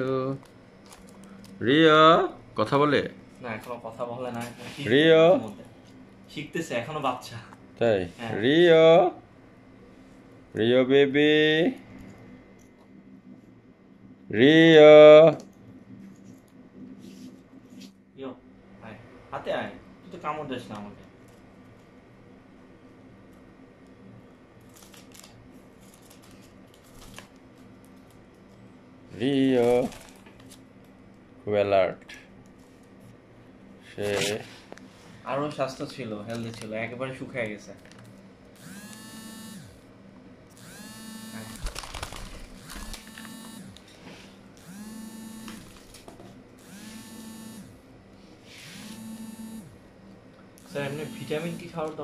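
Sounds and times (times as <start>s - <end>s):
low steady hum: 0.0s - 52.0s
paper rustling: 24.6s - 27.4s, 29.6s - 30.6s, 34.0s - 34.7s, 41.6s - 43.3s
mechanical whir: 33.9s - 52.0s.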